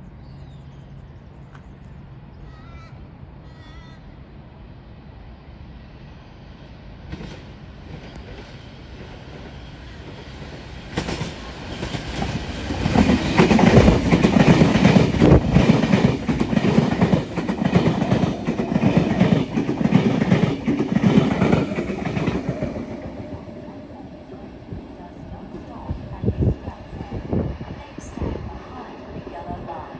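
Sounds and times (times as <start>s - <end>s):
electric train passing: 2.0s - 29.9s
train wheel clatter: 7.1s - 24.5s.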